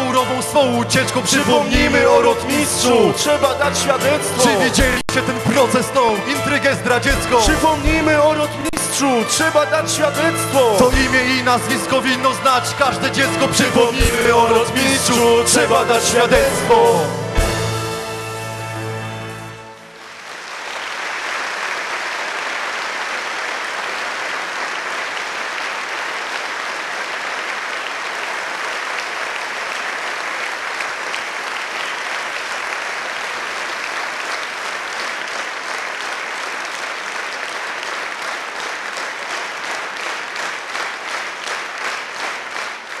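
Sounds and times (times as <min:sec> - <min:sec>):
rhythmic clapping in unison: 0:00.0 - 0:17.7, 0:20.0 - 0:43.0
audience applauding: 0:01.0 - 0:09.4, 0:19.8 - 0:43.0.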